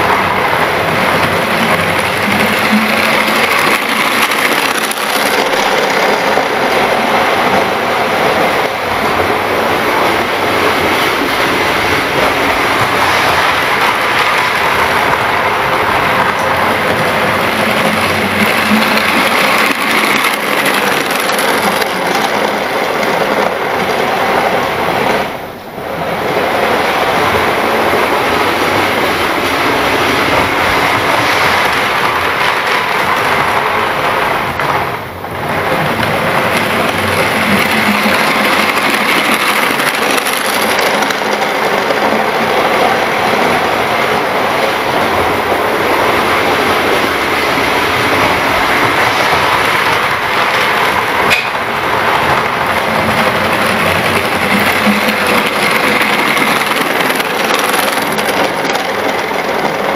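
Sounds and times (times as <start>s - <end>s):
model train running on track: 0.0s - 59.9s.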